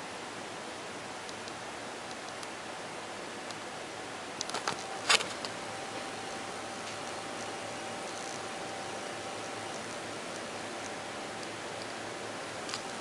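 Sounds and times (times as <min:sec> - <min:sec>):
computer fans hissing: 0:00.0 - 0:13.0
faint steady whine: 0:00.0 - 0:13.0
small clicks: 0:09.4 - 0:13.0.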